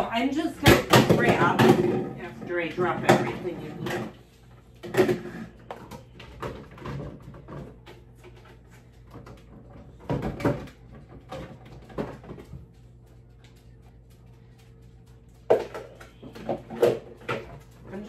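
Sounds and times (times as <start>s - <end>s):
cupboard doors and containers clattering: 4.8s - 12.6s.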